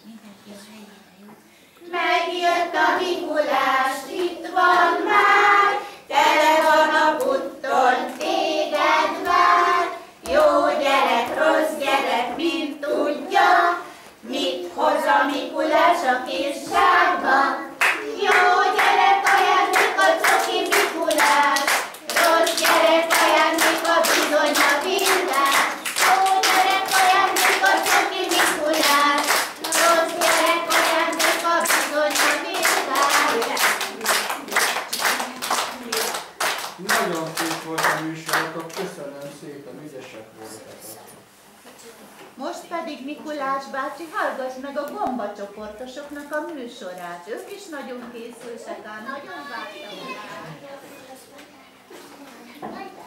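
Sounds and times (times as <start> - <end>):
children singing: 1.9 - 34.2
children clapping: 17.8 - 39.0.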